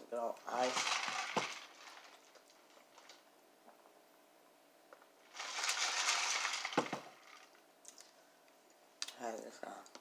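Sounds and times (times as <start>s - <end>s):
ice rattling in plastic cup: 0.4s - 3.2s, 5.3s - 7.6s.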